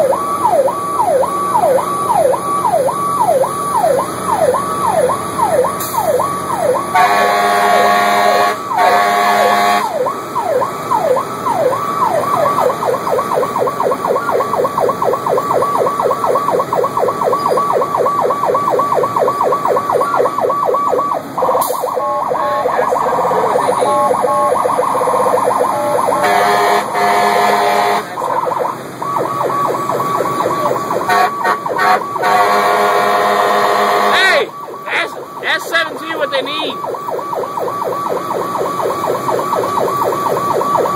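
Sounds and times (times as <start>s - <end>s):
emergency siren wailing: 0.0s - 40.9s
truck air horn blasts: 6.9s - 10.0s, 26.2s - 28.1s, 31.0s - 34.3s.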